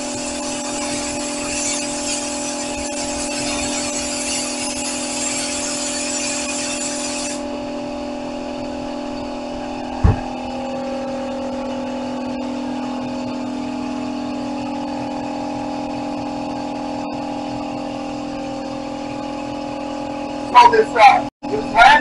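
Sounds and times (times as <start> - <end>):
air compressor humming: 0.0 - 21.9
sharp knock: 10.0 - 10.4.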